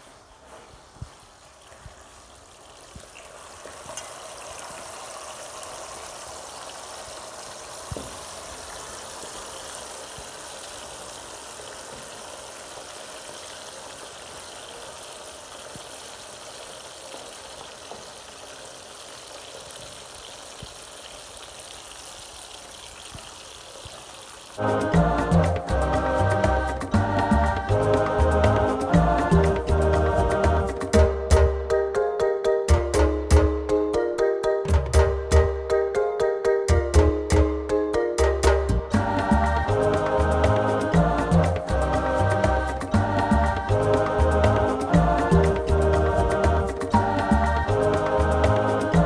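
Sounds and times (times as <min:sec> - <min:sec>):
fish sizzling in hot oil: 0:00.0 - 0:28.3.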